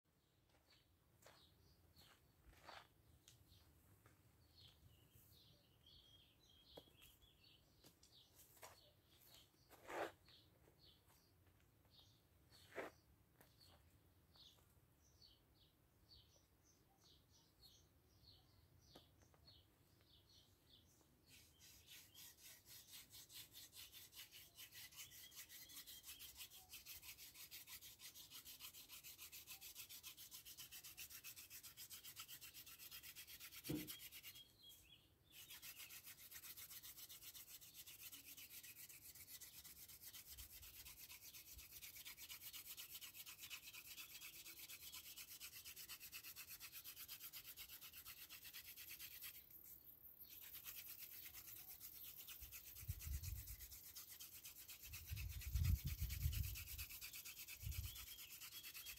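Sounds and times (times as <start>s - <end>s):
wooden spindle rubbing on board: 21.3s - 34.5s, 35.4s - 49.6s, 50.2s - 58.9s.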